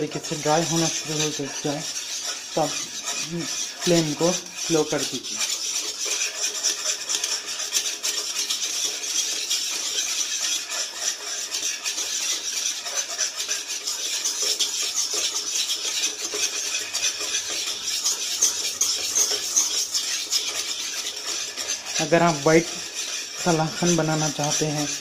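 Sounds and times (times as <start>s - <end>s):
utensil scraping thick milk in pan: 0.0s - 25.0s.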